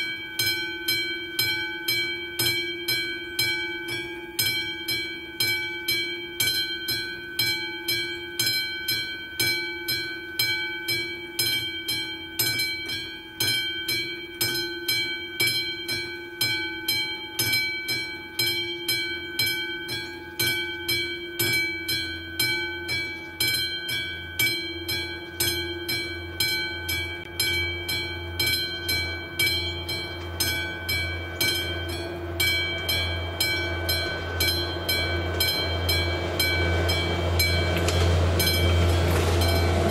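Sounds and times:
level crossing bell ringing: 0.0s - 39.9s
low rumble of oncoming train: 26.1s - 39.9s.

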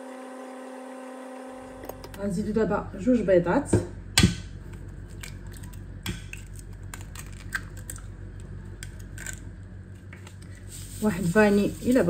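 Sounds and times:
eggshell cracking: 5.1s - 9.5s.

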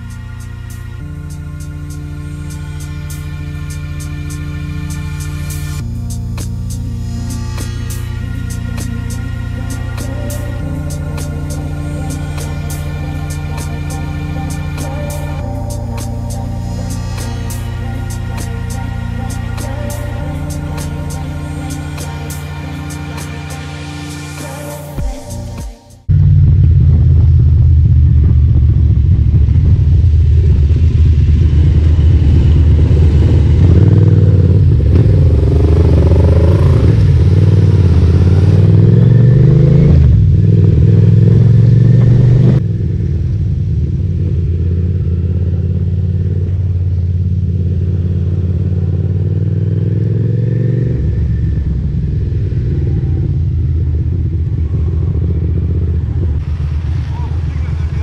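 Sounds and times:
motorcycle engine running: 26.1s - 58.0s.

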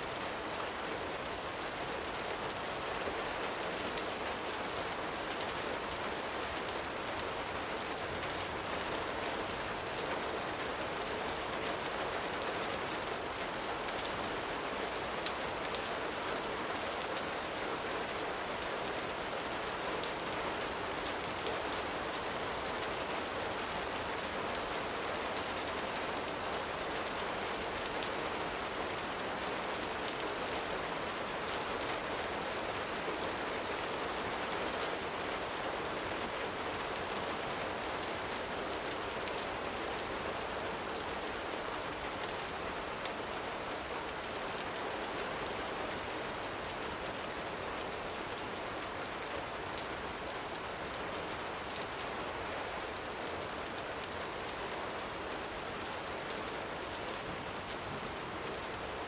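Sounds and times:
gentle rain falling: 0.0s - 59.0s.

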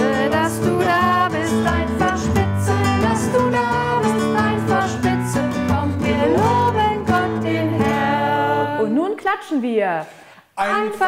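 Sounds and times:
nylon-string guitar strumming: 0.0s - 8.8s
voices singing: 0.0s - 9.0s, 10.5s - 11.0s.

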